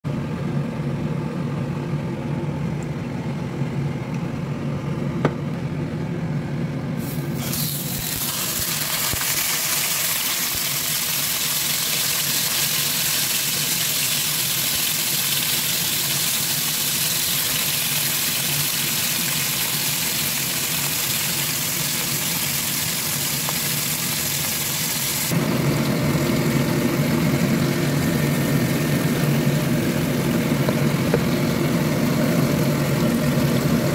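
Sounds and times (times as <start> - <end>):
low machine hum: 0.0 - 33.9
fish sizzling in hot oil: 7.0 - 33.9.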